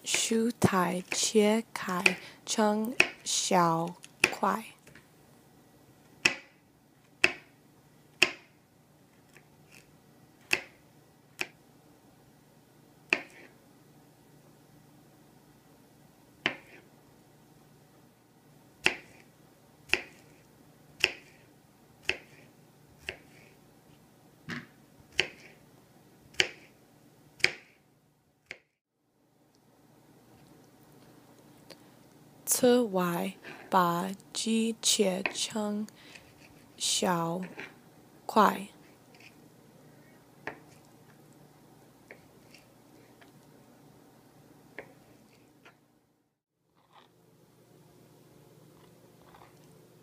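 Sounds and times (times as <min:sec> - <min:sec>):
knife chopping on plastic board: 0:03.0 - 0:03.2, 0:06.2 - 0:06.5, 0:07.2 - 0:07.5, 0:08.2 - 0:08.5, 0:10.4 - 0:10.8, 0:13.1 - 0:13.5, 0:16.4 - 0:16.8, 0:18.8 - 0:19.2, 0:19.9 - 0:20.2, 0:21.0 - 0:21.4, 0:22.0 - 0:22.4, 0:24.5 - 0:25.6, 0:26.3 - 0:26.7, 0:27.4 - 0:27.8.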